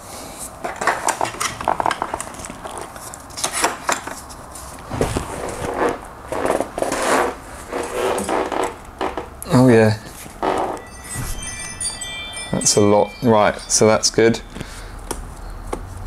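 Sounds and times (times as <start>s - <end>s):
metal tools clinking: 10.8s - 15.0s.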